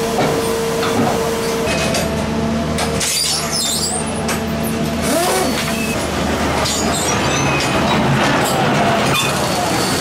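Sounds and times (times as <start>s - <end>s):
train engine hum: 0.0s - 10.0s
high metallic squeaks: 3.1s - 4.1s.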